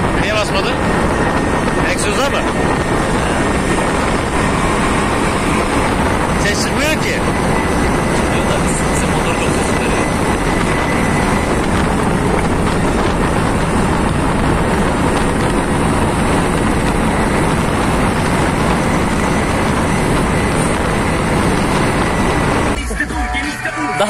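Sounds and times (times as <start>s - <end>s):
wind noise: 0.0s - 22.8s
car engine: 0.0s - 24.0s.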